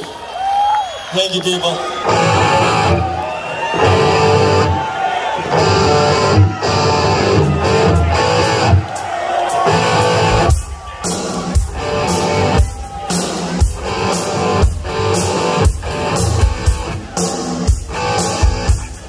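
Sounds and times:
live rock band playing: 2.0 - 19.0
strong drum hits: 10.2 - 11.9.

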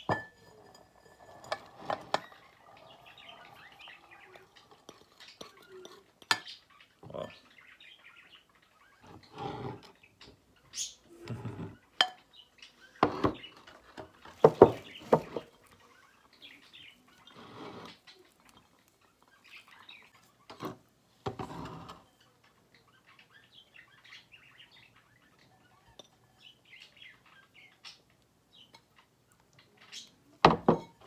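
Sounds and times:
plate clattering against bowl: 0.0 - 2.5, 14.4 - 15.5, 30.4 - 31.0
faint high chirps: 1.9 - 9.1
berries rustling and scraping: 17.2 - 18.4.

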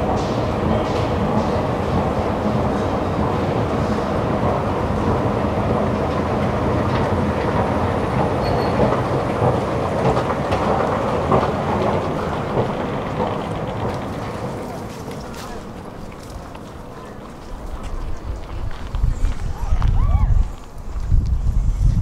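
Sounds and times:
escalator rumble and clatter: 0.0 - 20.0.

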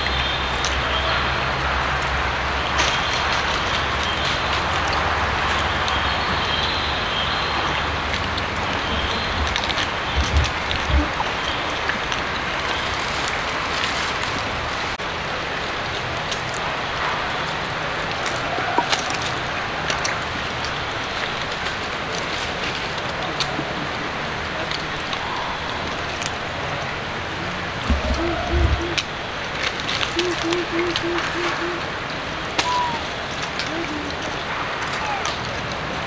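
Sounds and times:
low bumps: 7.6 - 15.0, 27.5 - 33.0.

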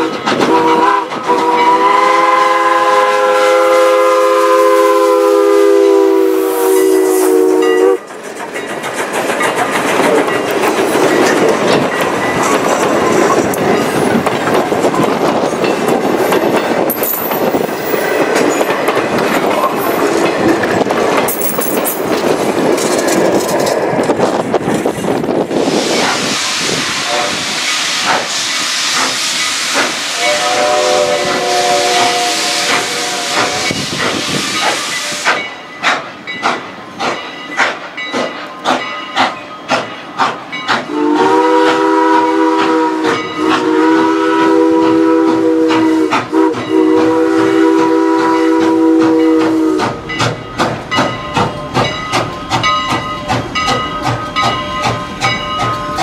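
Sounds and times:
steam whistle blasts: 0.0 - 8.1, 25.7 - 35.4, 40.9 - 50.0
steam hissing: 0.0 - 21.2, 24.0 - 56.0
steam engine chuffing: 0.2 - 21.3, 25.5 - 56.0.

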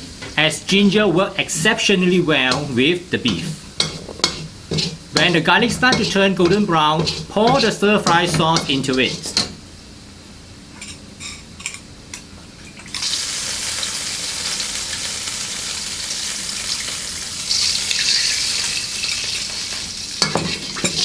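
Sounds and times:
sauce sizzling in a wok: 0.0 - 10.3, 12.9 - 21.0
spatula scraping a wok: 2.5 - 9.6.

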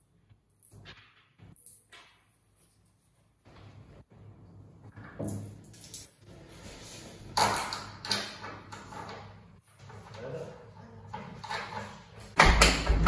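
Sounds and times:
knocks and clatter of bed parts: 11.4 - 13.0.

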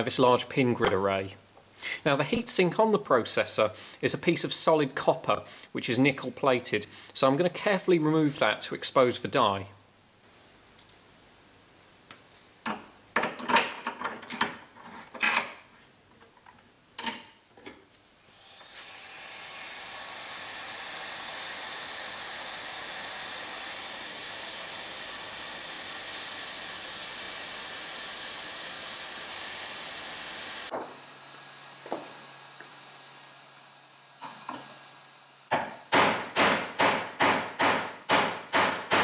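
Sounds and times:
hot air gun hissing: 18.2 - 37.8.

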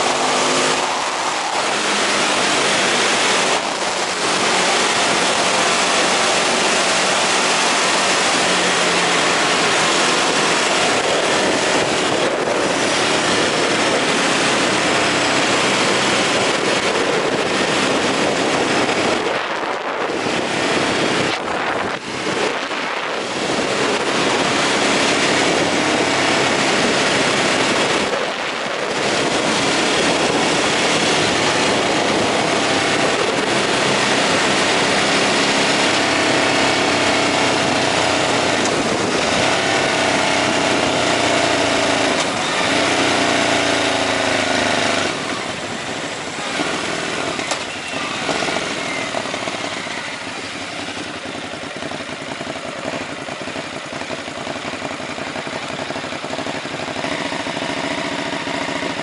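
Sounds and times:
motorcycle engine accelerating: 0.0 - 59.0
wind noise: 0.0 - 59.0.

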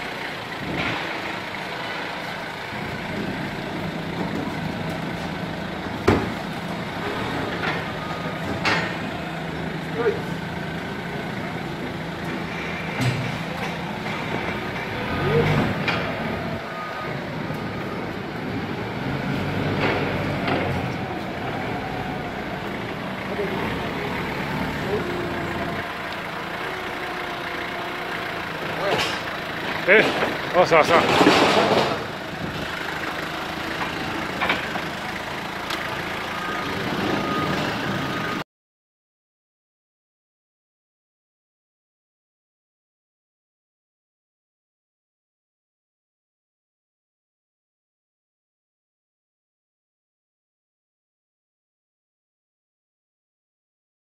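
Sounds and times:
forklift engine running: 0.0 - 38.4.

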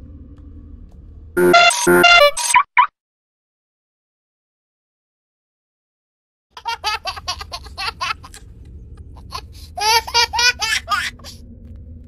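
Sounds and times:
low steady hum: 0.0 - 2.2, 6.6 - 12.0.

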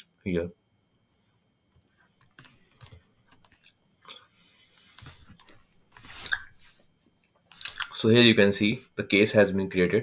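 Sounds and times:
keyboard and mouse clicks: 1.7 - 3.8.

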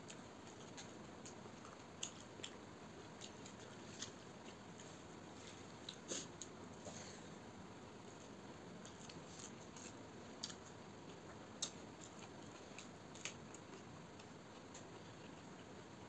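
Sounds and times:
wet chewing clicks: 0.1 - 4.7, 8.8 - 15.8.

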